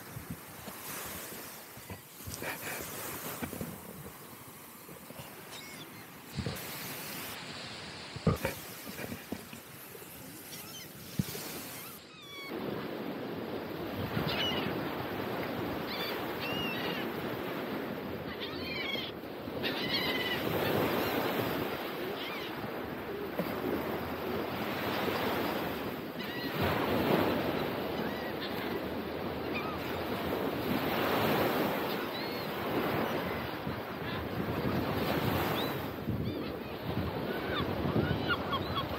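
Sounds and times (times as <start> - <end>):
ocean surf on beach: 0.0 - 38.9
high bird calls: 5.2 - 6.2.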